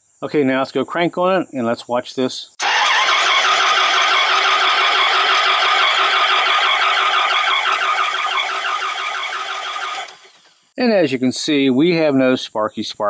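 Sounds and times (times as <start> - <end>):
engine cranking on starter: 2.6 - 10.6.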